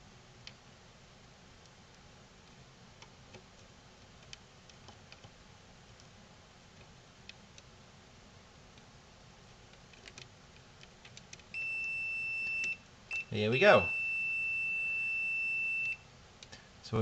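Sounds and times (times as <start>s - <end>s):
multimeter continuity beep: 11.5s - 16.0s.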